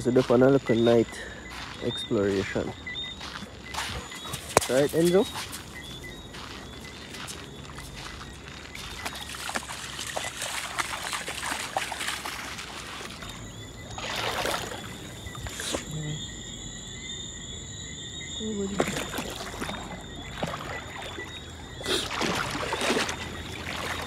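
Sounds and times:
faint steady high tones: 0:00.0 - 0:10.6
wading through shallow water: 0:00.0 - 0:17.8, 0:18.4 - 0:24.0.

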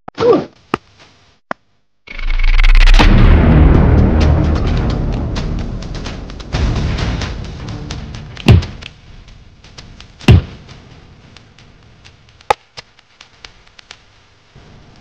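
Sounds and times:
heavy deep thuds: 0:03.1 - 0:10.8.

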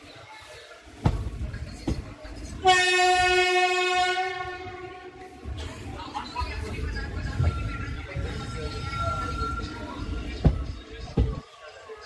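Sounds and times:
moving train rumble: 0:00.1 - 0:11.9
locomotive horn: 0:02.6 - 0:05.4.

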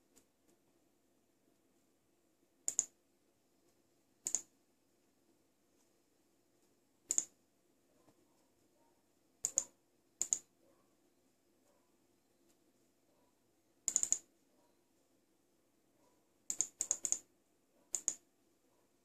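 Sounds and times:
computer mouse button clicks: 0:02.7 - 0:02.9, 0:04.2 - 0:04.5, 0:07.1 - 0:07.3, 0:09.4 - 0:10.5, 0:13.9 - 0:14.3, 0:16.5 - 0:17.2, 0:17.9 - 0:18.2.

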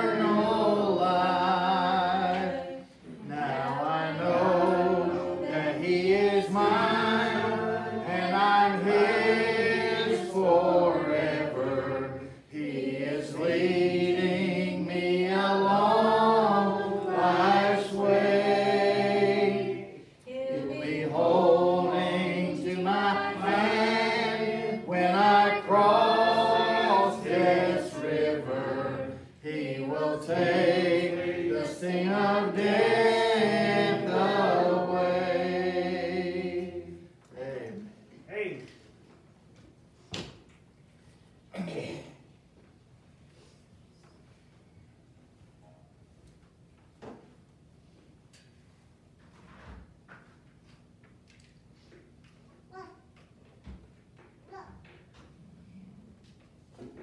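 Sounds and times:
congregation singing a hymn: 0:00.0 - 0:37.9.

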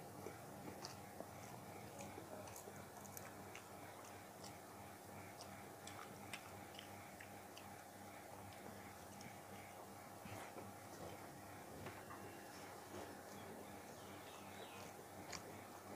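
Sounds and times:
man chewing: 0:00.0 - 0:11.4, 0:14.5 - 0:15.9.

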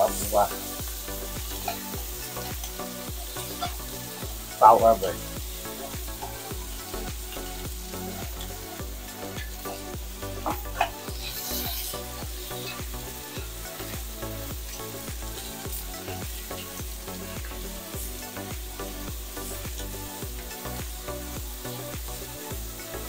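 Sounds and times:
food sizzling in a pan: 0:00.0 - 0:23.0.

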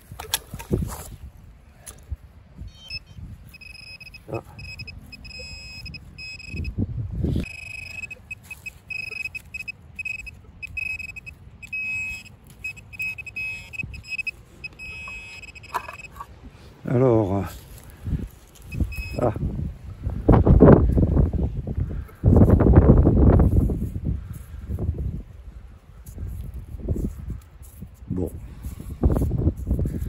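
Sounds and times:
metal detector beeping: 0:02.7 - 0:06.8, 0:07.4 - 0:16.3, 0:18.6 - 0:19.4.

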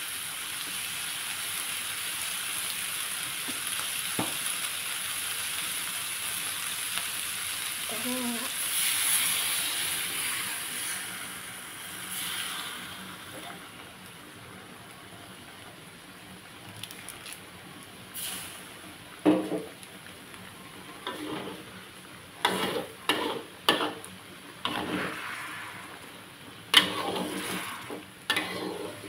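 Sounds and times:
food sizzling in a wok: 0:00.0 - 0:29.0
water poured into pan: 0:08.6 - 0:13.4, 0:18.2 - 0:18.7, 0:24.6 - 0:26.2, 0:26.8 - 0:29.0.

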